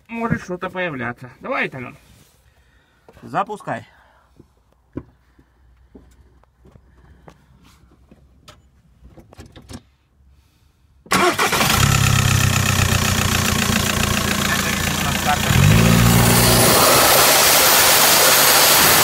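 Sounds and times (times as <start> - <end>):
diesel engine idling: 11.1 - 19.0.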